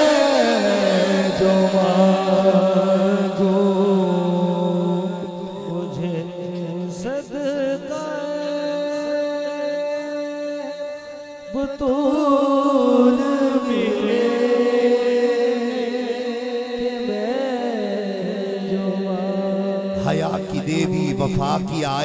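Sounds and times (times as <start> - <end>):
solo voice singing long notes: 0.0 - 22.0.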